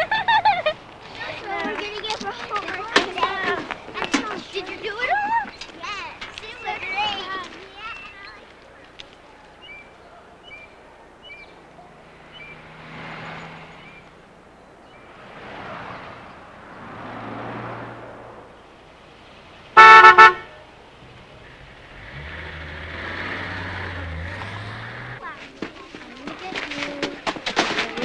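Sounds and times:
car engine humming: 9.2 - 25.2
cars passing whoosh: 11.6 - 25.2
car horn honking: 19.8 - 20.6.

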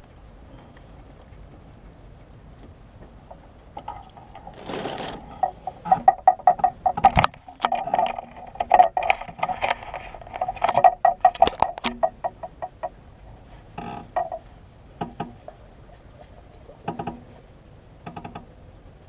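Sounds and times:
knocks and squeaks in plastic cooler: 3.8 - 17.4.

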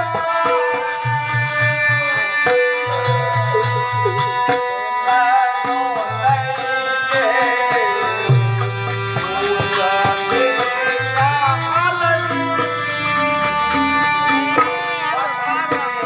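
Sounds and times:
hand drums beating: 0.0 - 6.6, 7.2 - 16.0
wavering melody line: 0.5 - 6.8, 7.8 - 16.0
steady held drone: 8.1 - 16.0.

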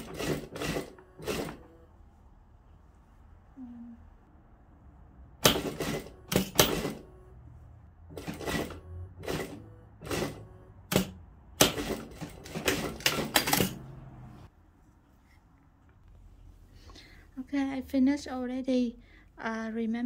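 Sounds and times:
sewing machine stitching: 0.0 - 1.8, 5.4 - 7.1, 8.1 - 14.0.

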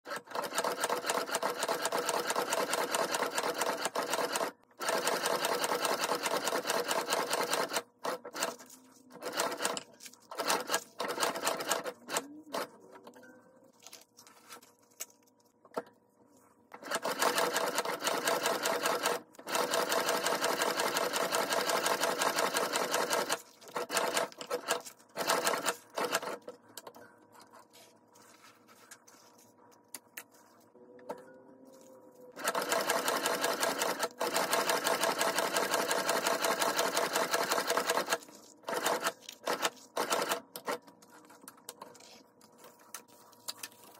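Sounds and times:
sewing machine stitching: 0.1 - 13.1, 16.8 - 26.4, 32.4 - 40.8.

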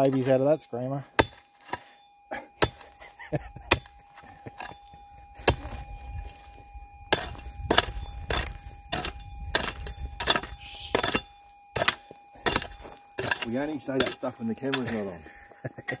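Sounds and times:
pick striking gravel: 3.7 - 15.2.

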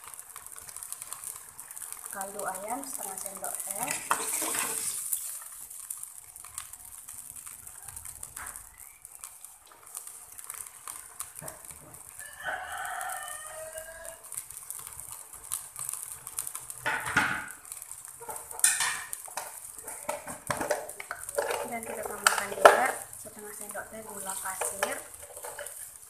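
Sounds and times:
sauce simmering in a wok: 0.0 - 26.0
kitchen clatters: 2.0 - 5.4, 16.8 - 26.0
rooster crowing: 12.2 - 14.3.

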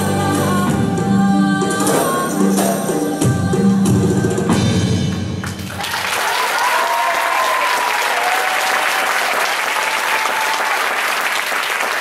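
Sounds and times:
audience applauding: 5.4 - 12.0
long high calls from crowd: 6.2 - 11.2.

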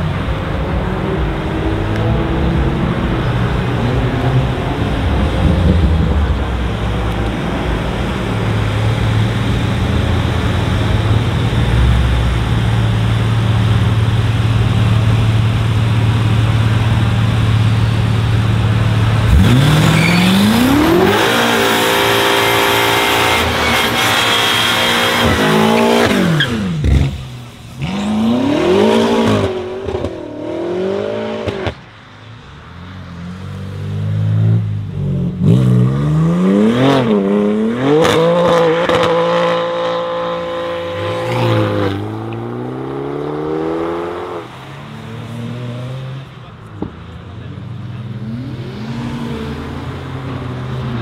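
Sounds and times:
car engine idling: 0.0 - 19.5
car engine accelerating hard: 0.0 - 31.8, 33.4 - 51.0.

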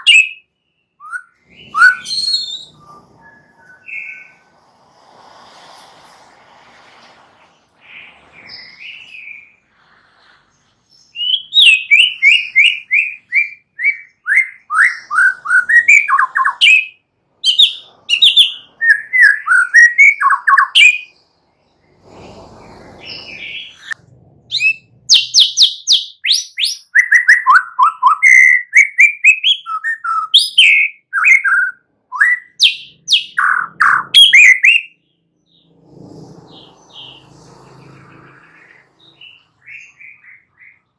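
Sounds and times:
bird singing whistled notes: 0.0 - 4.6, 10.9 - 21.2, 23.0 - 35.7.

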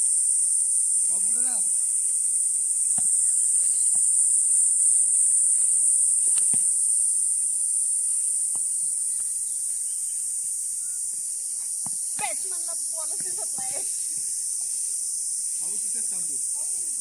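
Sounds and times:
insects droning: 0.0 - 17.0.

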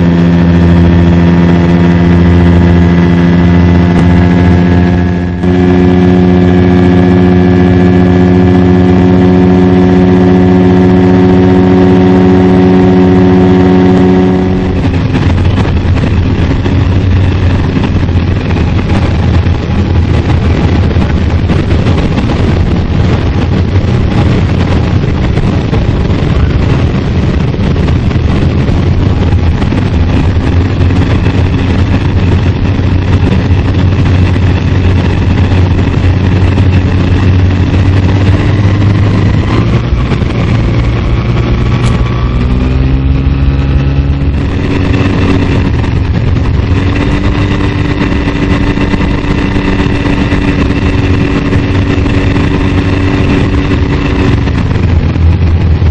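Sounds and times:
aircraft engine and propeller: 0.0 - 55.9
steady air rush: 14.4 - 55.9.

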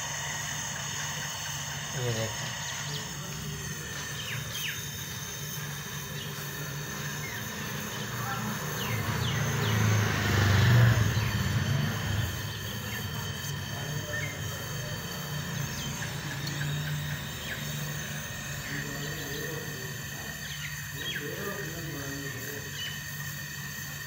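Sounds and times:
gas torch flame hissing: 0.0 - 24.0
steady low hum: 0.0 - 24.0.

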